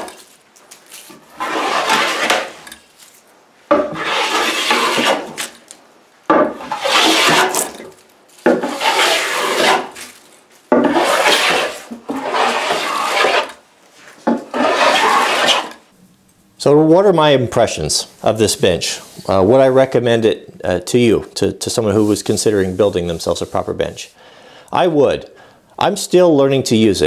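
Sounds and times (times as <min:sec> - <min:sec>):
hand plane shaving wood: 0:01.3 - 0:02.6, 0:03.7 - 0:05.5, 0:06.5 - 0:07.8, 0:08.5 - 0:10.1, 0:10.7 - 0:13.6, 0:14.3 - 0:15.8.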